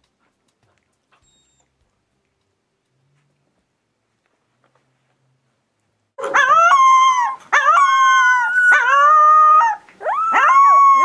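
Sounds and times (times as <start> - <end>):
puppy howling: 6.2 - 11.0.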